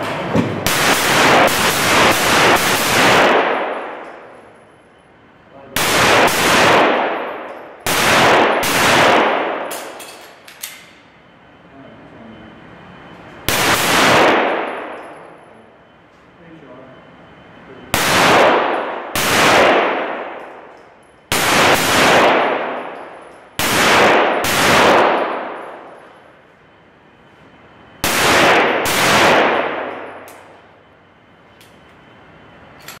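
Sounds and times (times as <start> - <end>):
pistol shots echoing: 0.6 - 4.4, 5.7 - 10.0, 13.5 - 15.2, 18.0 - 26.0, 28.0 - 30.6.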